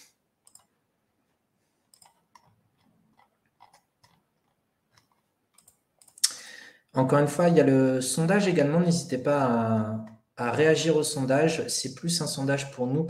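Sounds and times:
small clicks: 0.0s - 0.7s, 1.9s - 6.4s.

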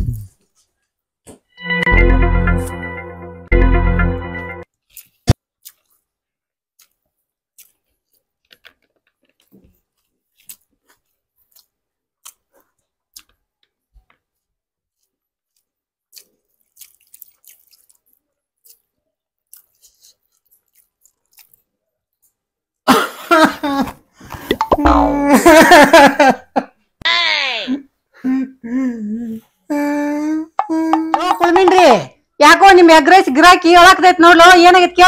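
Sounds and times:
man chewing with mouth smacks: 4.7s - 14.3s, 14.9s - 22.4s.

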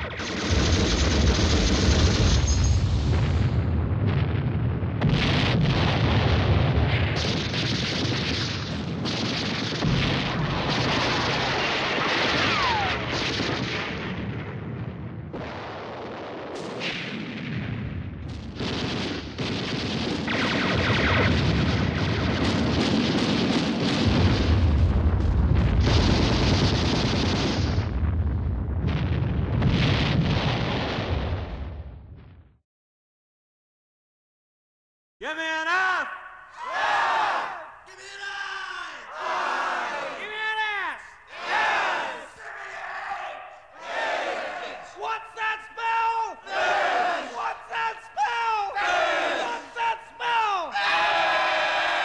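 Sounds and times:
gunfire: 0.0s - 4.3s, 4.9s - 32.1s
explosions: 0.0s - 32.6s.

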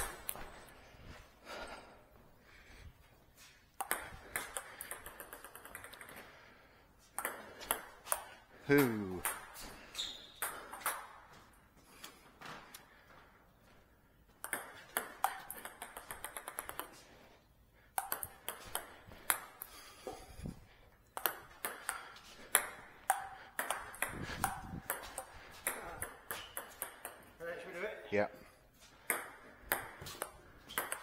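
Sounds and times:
ball bouncing on table: 3.8s - 6.3s, 7.1s - 9.7s, 14.4s - 16.9s, 18.0s - 19.6s, 21.2s - 27.3s, 29.0s - 31.0s
table tennis ball clicks: 18.0s - 19.5s.

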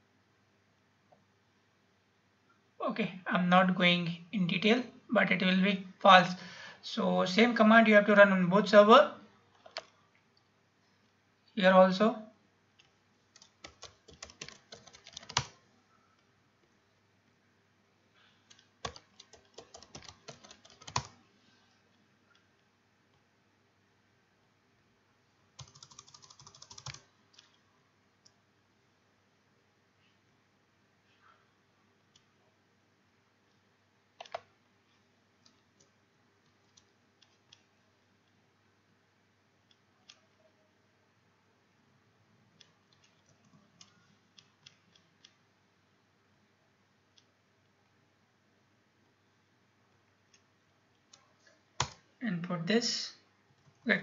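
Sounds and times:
keyboard typing: 12.8s - 15.6s, 18.5s - 21.2s, 25.6s - 27.6s, 34.2s - 34.5s, 42.6s - 45.4s, 50.3s - 52.1s
mouse clicking: 25.6s - 27.6s, 34.2s - 34.5s, 42.6s - 45.4s, 51.8s - 52.0s.

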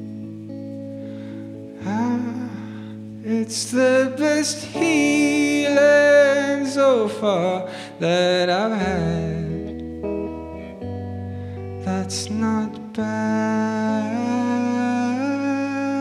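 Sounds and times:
person singing: 1.8s - 9.8s, 11.8s - 16.0s.

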